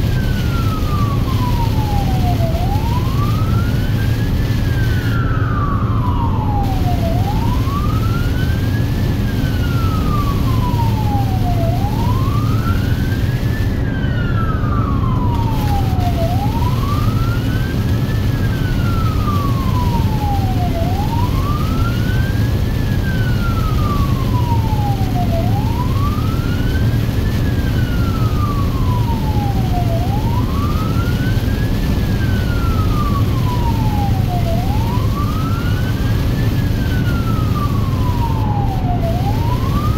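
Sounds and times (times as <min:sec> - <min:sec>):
engine and road noise: 0:00.0 - 0:39.9
wailing siren: 0:00.0 - 0:39.9.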